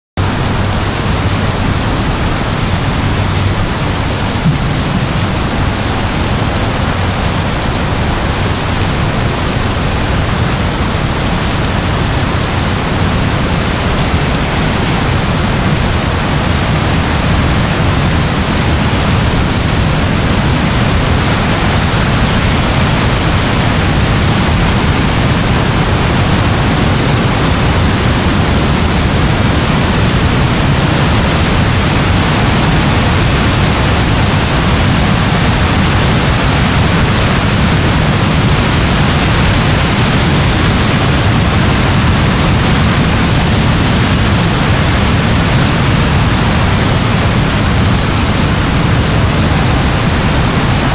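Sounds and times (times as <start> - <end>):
low rumble: 0.2 - 32.2
heavy rain pouring: 0.2 - 50.9.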